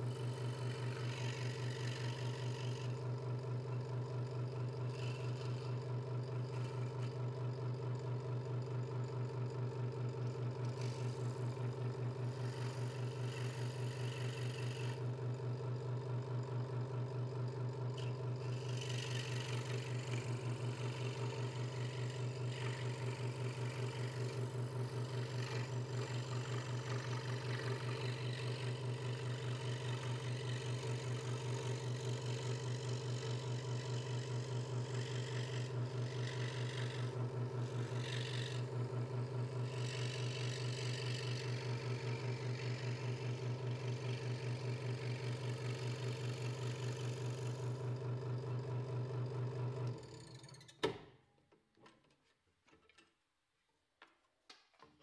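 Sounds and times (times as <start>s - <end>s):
scroll saw running: 0.0s - 7.5s, 10.2s - 15.2s, 17.8s - 48.7s.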